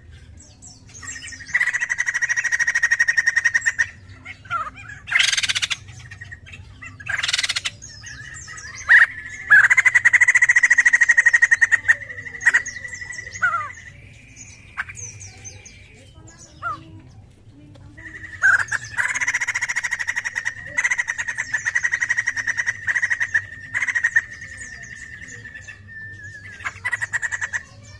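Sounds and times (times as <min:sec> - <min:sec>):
bird calling: 0:00.8 - 0:27.9
bird rattling chatter: 0:18.0 - 0:24.3.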